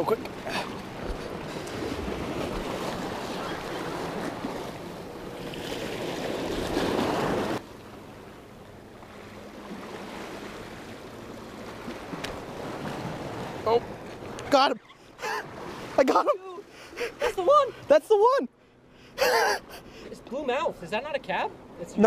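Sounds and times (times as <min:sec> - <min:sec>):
surf washing against rocks: 0:00.0 - 0:07.6.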